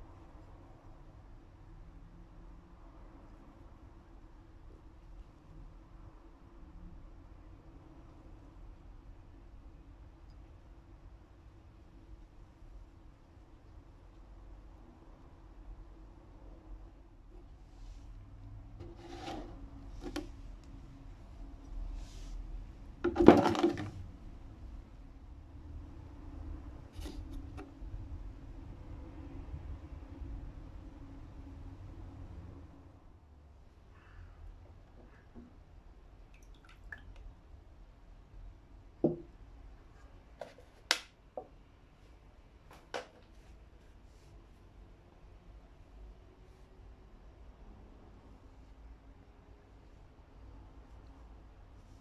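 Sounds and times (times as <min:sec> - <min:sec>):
light clicks and rubs: 0:17.4 - 0:20.8.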